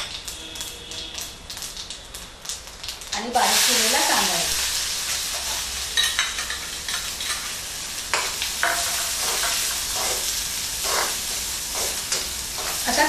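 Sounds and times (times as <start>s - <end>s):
onion sizzling in hot oil: 0.0s - 13.0s
spoon scraping pan: 8.1s - 13.0s.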